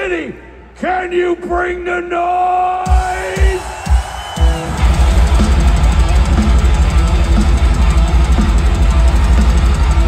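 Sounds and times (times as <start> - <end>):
pounding drum kit: 2.8 - 10.0
bass guitar: 4.3 - 10.0
electric guitar: 4.4 - 10.0.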